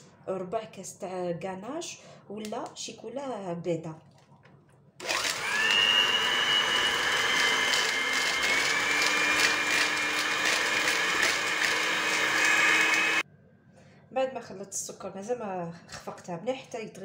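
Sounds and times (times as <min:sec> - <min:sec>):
electric hand mixer whining: 0:05.0 - 0:13.2.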